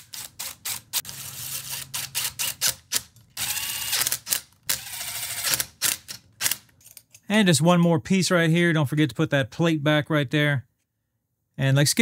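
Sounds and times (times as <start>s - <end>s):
impact driver running: 3.4s - 5.7s.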